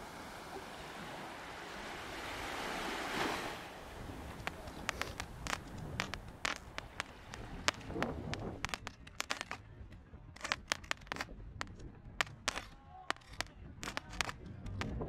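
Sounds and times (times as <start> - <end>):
fireworks popping and crackling: 4.1 - 9.6, 10.4 - 15.0.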